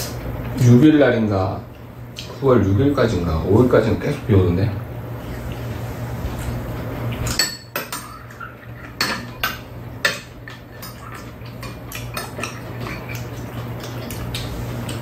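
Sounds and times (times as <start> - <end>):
spoon and chopsticks clinking bowls: 7.2 - 14.1.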